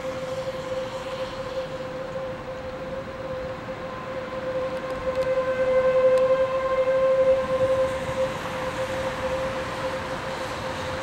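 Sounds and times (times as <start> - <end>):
tornado warning siren: 0.0 - 11.0.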